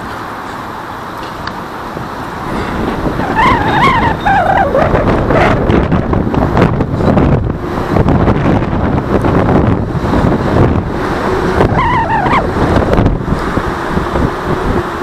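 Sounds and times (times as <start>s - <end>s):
road traffic noise: 0.0s - 15.0s
wavering squeal: 2.5s - 5.7s, 11.0s - 13.2s.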